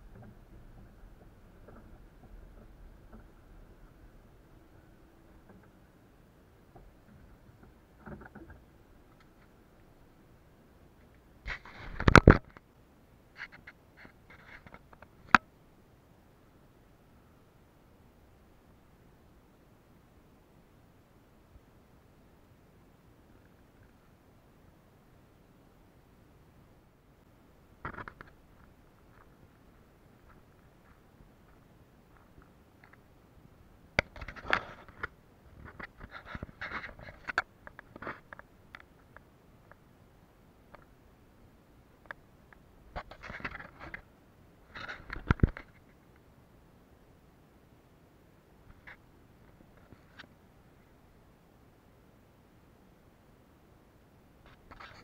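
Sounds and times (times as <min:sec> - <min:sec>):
soft clicks and clatters: 0:00.0 - 0:06.0, 0:06.6 - 0:09.9, 0:11.0 - 0:12.7, 0:13.3 - 0:15.5, 0:27.8 - 0:33.1, 0:34.0 - 0:39.8, 0:40.7 - 0:41.0, 0:42.0 - 0:44.1, 0:44.7 - 0:46.3
scraping and rustling: 0:34.0 - 0:38.4.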